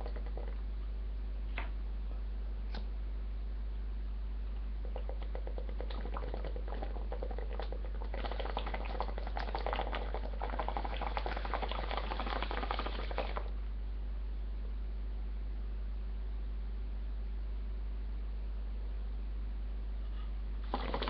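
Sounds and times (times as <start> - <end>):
water bubbling in a bong: 0.0 - 0.6, 4.8 - 13.6, 20.6 - 21.0.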